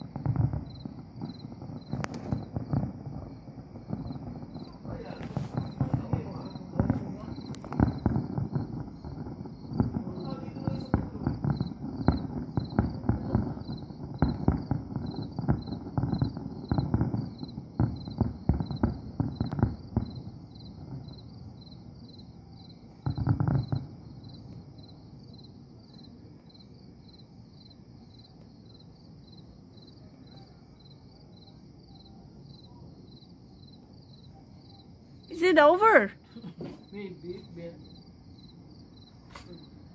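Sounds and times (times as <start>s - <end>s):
heavy fireworks boom: 0.0s - 21.7s, 23.0s - 25.3s
crickets chirping: 0.0s - 39.9s
fireworks bangs and crackling pops: 0.0s - 39.9s.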